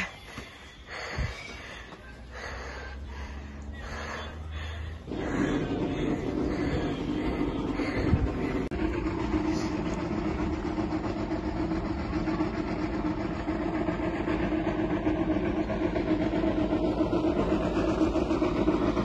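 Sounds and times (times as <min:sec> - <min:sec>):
wind rumbling on microphone: 0:05.2 - 0:12.2.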